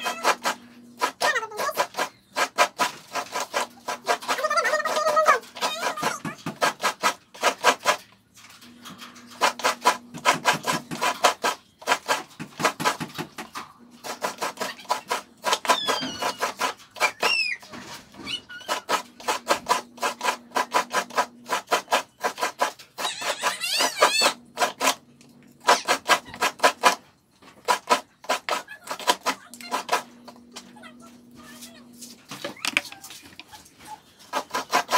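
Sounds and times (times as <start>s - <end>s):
coconut grated on serrated blade: 0.0s - 8.0s, 14.0s - 17.4s, 18.3s - 25.0s, 27.6s - 30.3s, 34.0s - 34.9s.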